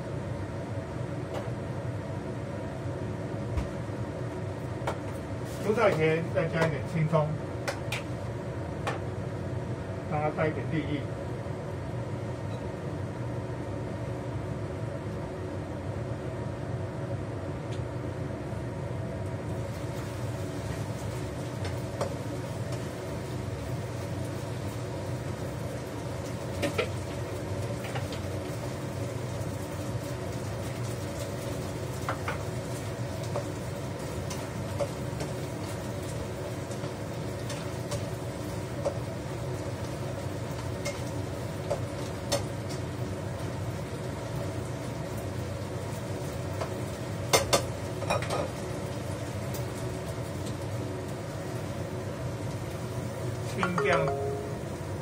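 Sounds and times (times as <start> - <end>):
range hood fan humming: 0.0 - 55.0.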